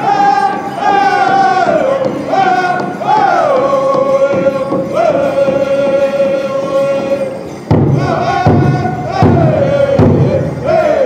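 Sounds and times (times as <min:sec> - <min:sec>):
group singing in unison: 0:00.0 - 0:11.0
heavy big drum beats: 0:00.0 - 0:11.0.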